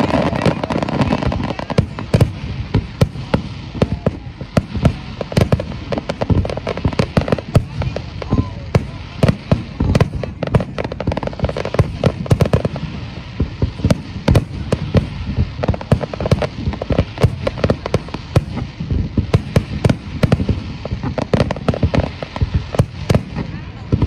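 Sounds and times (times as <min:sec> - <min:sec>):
fireworks bursting: 0:00.0 - 0:24.0.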